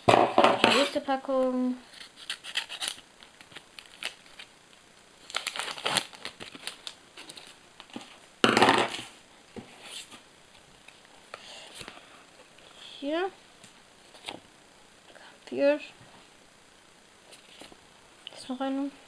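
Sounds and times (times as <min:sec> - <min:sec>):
wrapper tearing and crinkling: 0:01.9 - 0:04.5, 0:05.2 - 0:08.0.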